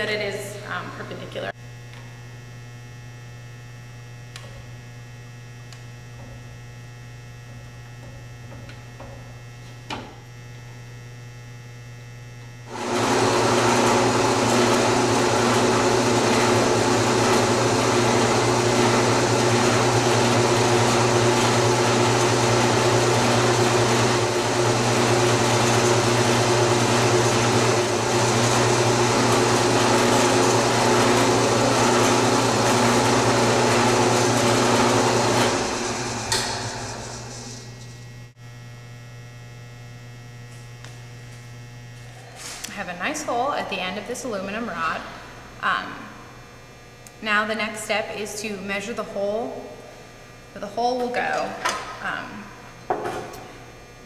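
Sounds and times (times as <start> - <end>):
drill press drilling metal: 12.7 - 38.0.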